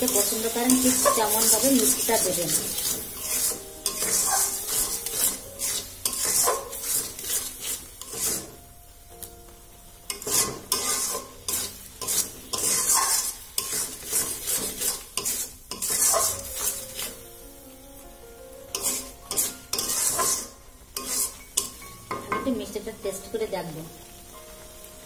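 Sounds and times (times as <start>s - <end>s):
metal spatula scraping a pan: 0.0s - 8.6s, 10.1s - 17.2s, 18.7s - 22.3s
food sizzling: 0.0s - 25.0s.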